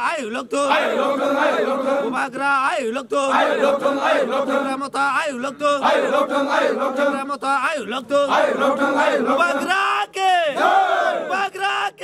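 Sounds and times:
men chanting in unison: 0.0 - 12.0.

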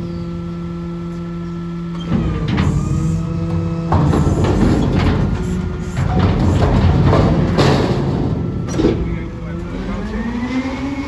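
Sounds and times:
garbage truck engine running: 0.0 - 11.0
hydraulic bin lifter: 0.0 - 11.0
wooden pallets rattling: 3.6 - 9.3.

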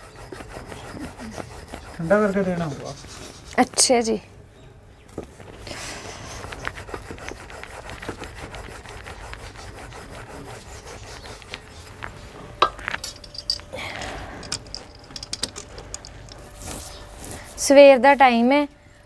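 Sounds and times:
rolling pin rubbing dough: 0.0 - 4.1, 5.5 - 13.4
sharp clicks and knocks: 14.4 - 16.4.

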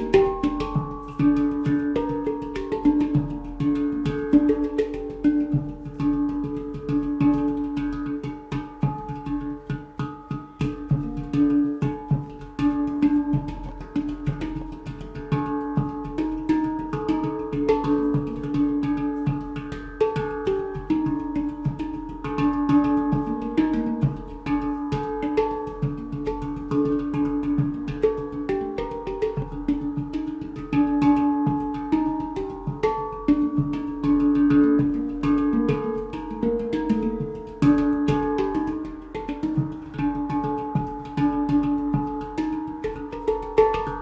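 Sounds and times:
handpan melody played with fingers: 0.0 - 44.0
low handpan note: 0.0 - 44.0.

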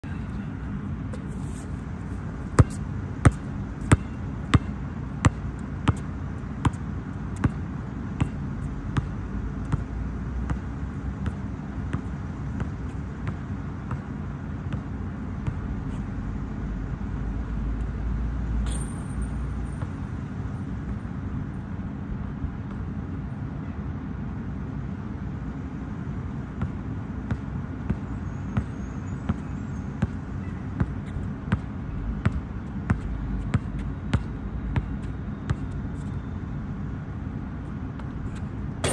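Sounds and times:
basketball dribbling on court: 2.5 - 6.8, 7.4 - 7.6, 8.2 - 14.1, 30.8 - 35.8, 38.0 - 38.9.

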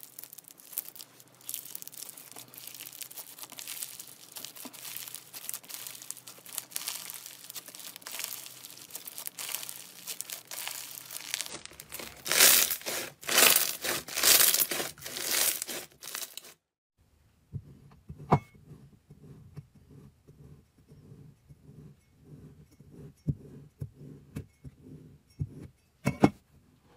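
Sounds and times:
crunchy slime crackling and popping: 0.0 - 16.6
knife scraping foam: 1.7 - 16.6.

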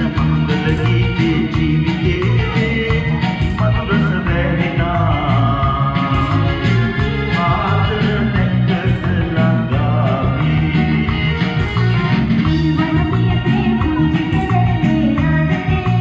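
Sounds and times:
karaoke backing track: 0.0 - 16.0
man singing: 0.0 - 16.0
woman singing: 12.5 - 16.0.

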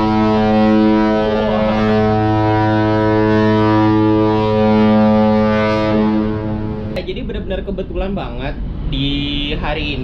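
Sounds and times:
ship horn deep blast: 0.0 - 7.0.

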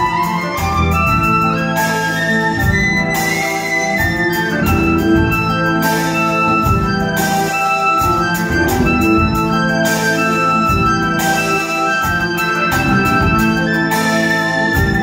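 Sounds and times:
electric violin lead: 0.0 - 15.0
jazz fusion band playing: 0.0 - 15.0
loud ensemble hits: 4.3 - 15.0.

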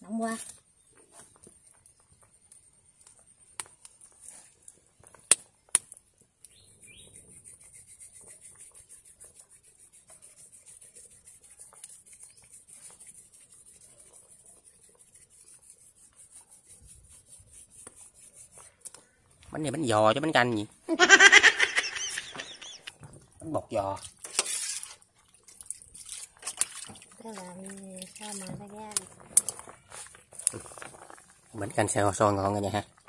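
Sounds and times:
wood fire crackling: 0.0 - 9.4, 11.1 - 33.0
soup bubbling in a pan: 29.0 - 33.0.

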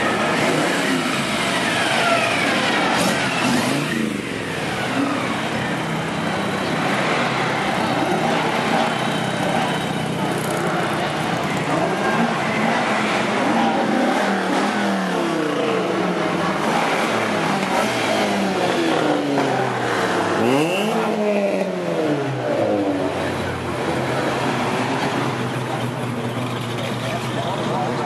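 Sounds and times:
car engine revving sharply: 0.0 - 5.6, 10.4 - 25.4.

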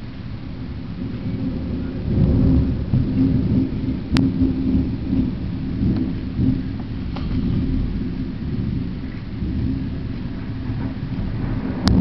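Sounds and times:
rain hissing: 0.0 - 12.0
thunder rumbling: 0.0 - 12.0.

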